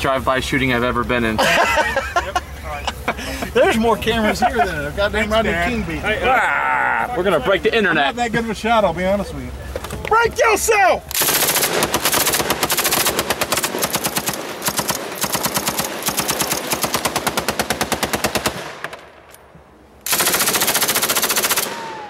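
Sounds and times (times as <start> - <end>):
automatic rifle bursts: 11.1 - 19.0, 20.0 - 22.0.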